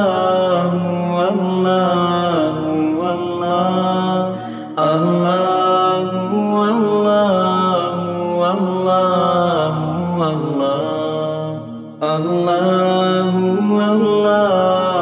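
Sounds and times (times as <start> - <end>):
person chanting slow melody: 0.0 - 15.0.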